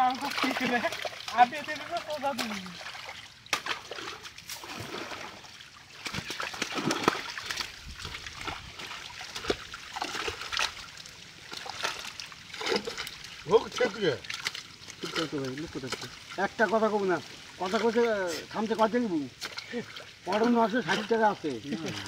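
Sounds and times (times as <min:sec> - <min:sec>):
fish thrashing and splashing: 0:00.0 - 0:16.7
hands plunging into water: 0:06.0 - 0:10.8.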